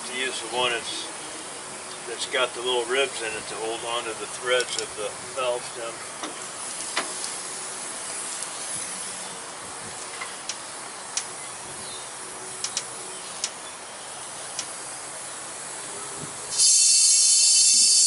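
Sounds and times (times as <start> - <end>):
compressed air hissing: 6.1 - 13.6, 14.2 - 18.0.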